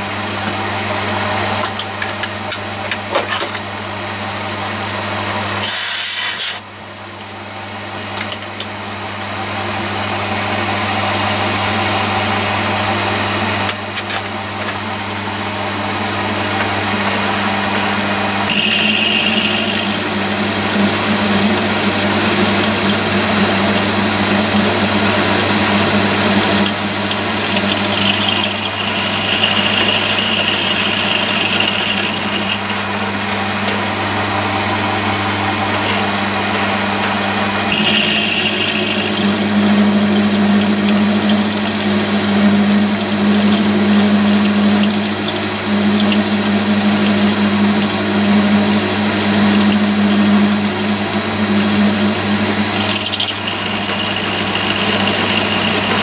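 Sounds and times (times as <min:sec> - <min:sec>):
milling motor hum: 0:00.0 - 0:56.0
end mill cutting steel: 0:15.4 - 0:56.0
high-pitched whine: 0:15.8 - 0:56.0.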